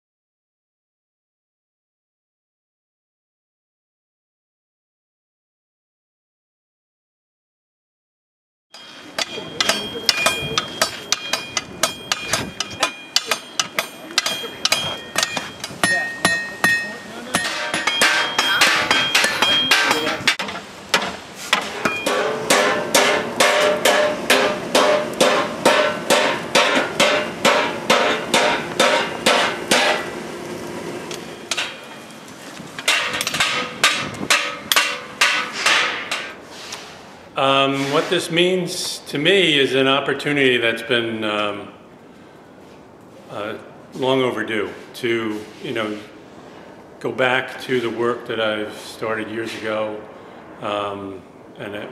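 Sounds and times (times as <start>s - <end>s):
hammer striking steel on anvil: 8.8s - 30.1s, 31.5s - 32.0s, 32.8s - 36.4s.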